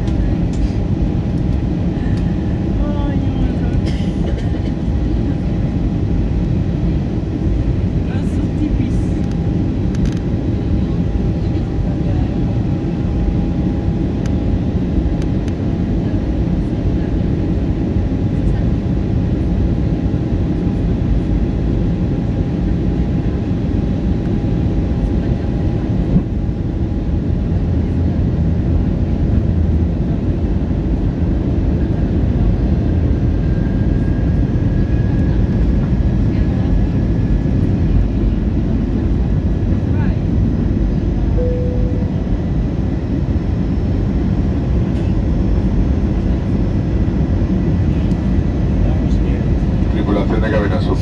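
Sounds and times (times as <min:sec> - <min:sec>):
jet cabin rumble: 0:00.0 - 0:51.0
faint steady whine: 0:40.7 - 0:51.0
high faint tone: 0:41.3 - 0:42.9.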